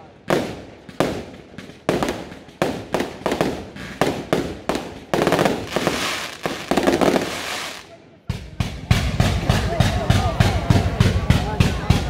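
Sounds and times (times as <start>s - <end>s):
rapid firework crackle: 0.2s - 7.9s
firework shells bursting: 0.3s - 7.9s.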